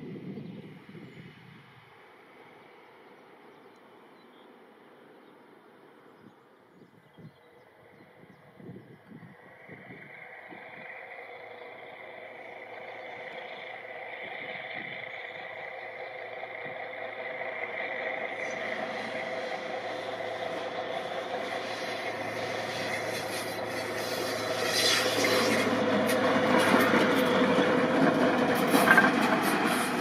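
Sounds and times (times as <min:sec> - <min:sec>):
train running hum: 0:00.0 - 0:30.0
wheel and rail clatter: 0:08.8 - 0:30.0.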